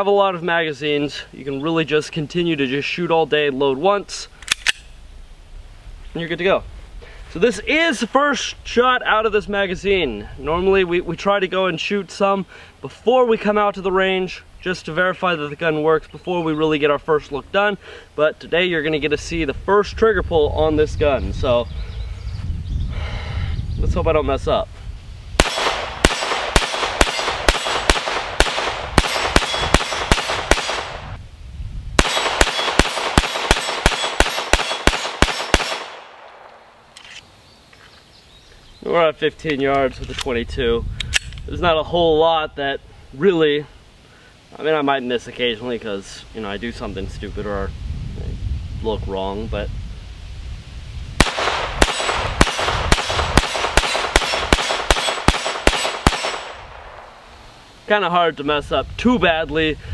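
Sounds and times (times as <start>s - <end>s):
pistol shots in quick succession: 25.4s - 31.0s, 32.0s - 36.5s, 51.2s - 57.2s.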